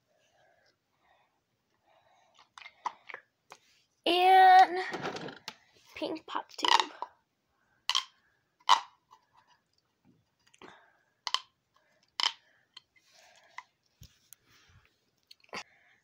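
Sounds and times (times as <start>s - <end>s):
plastic pop tube popping: 7.9s - 9.0s, 11.3s - 11.5s
faint plastic crinkling: 8.6s - 15.6s.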